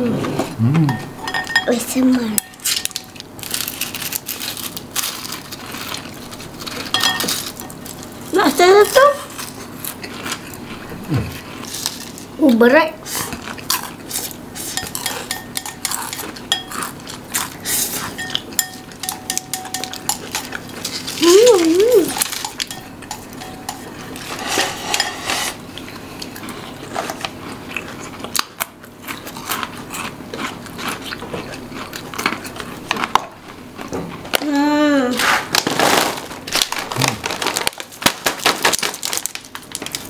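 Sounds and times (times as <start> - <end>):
person humming: 0.0 - 1.1, 21.2 - 22.2, 37.0 - 37.2
cutlery clinking on plates: 0.9 - 1.8, 6.9 - 7.8, 18.1 - 20.6.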